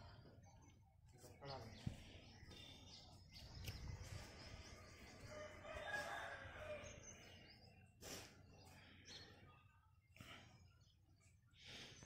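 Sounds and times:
faint rooster crowing: 5.2 - 7.2.

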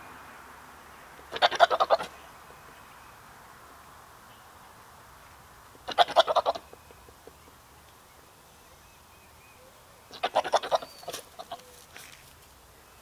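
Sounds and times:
goat bleating: 1.3 - 2.1, 5.8 - 6.6, 10.1 - 11.6.

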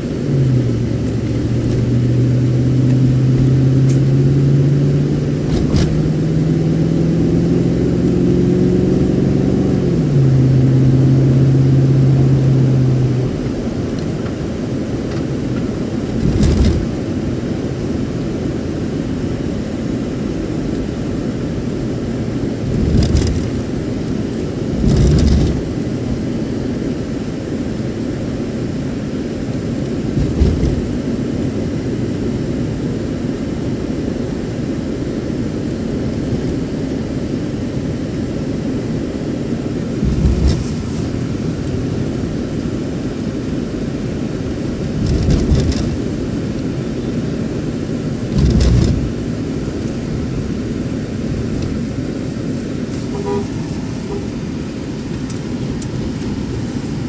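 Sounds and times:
road and engine noise inside vehicle: 0.0 - 57.0
vehicle bumps: 5.4 - 6.2, 15.6 - 17.0, 22.7 - 23.6, 24.8 - 25.7, 30.1 - 31.0, 40.0 - 41.5, 45.0 - 46.0, 48.3 - 49.2.

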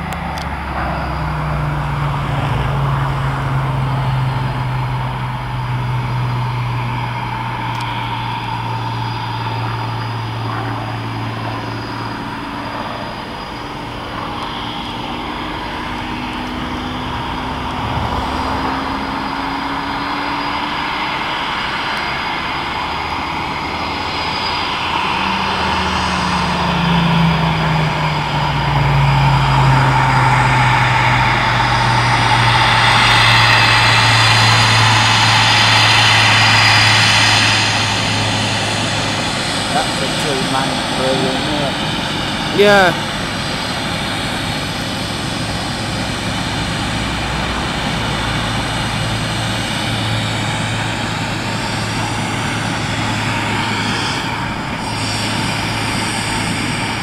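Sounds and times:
propeller aircraft flying past: 0.0 - 57.0.

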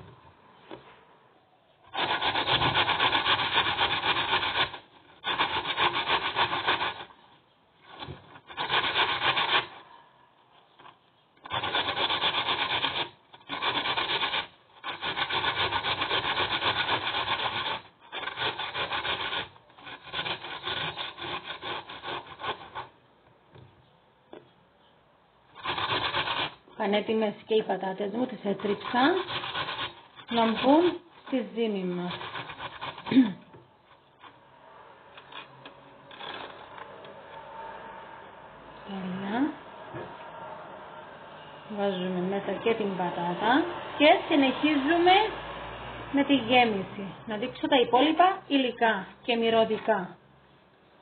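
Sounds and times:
potato grated on metal grater: 1.9 - 7.2, 7.9 - 9.9, 11.4 - 23.0, 25.5 - 34.4, 35.2 - 37.0.

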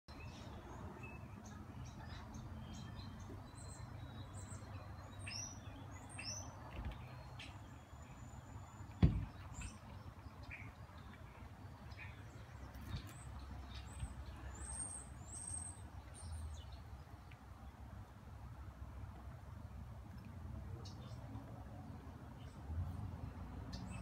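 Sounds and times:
small birds chirping: 0.1 - 18.0, 19.6 - 24.0
sharp thump: 9.0 - 9.7.

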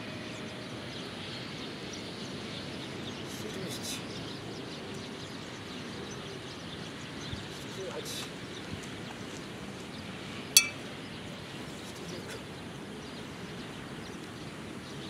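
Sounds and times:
outdoor background noise: 0.0 - 15.0
metal sai clinking: 10.6 - 10.8.

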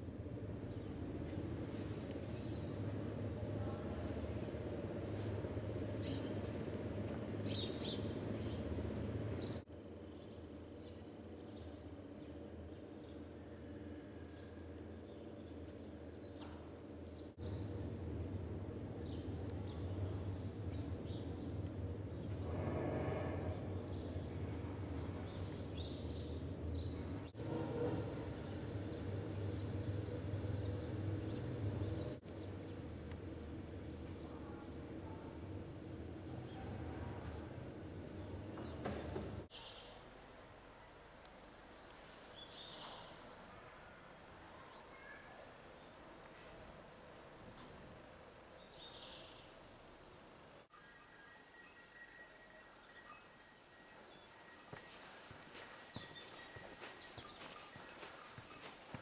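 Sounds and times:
low hum of village ambience: 0.0 - 59.0
steady low rumble: 16.9 - 27.4
small birds chirping: 51.2 - 59.0.

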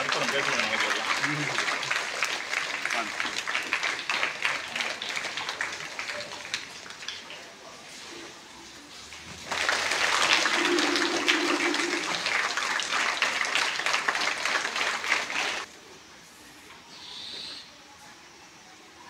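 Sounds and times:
crowd clapping: 0.0 - 7.6, 9.4 - 15.7.

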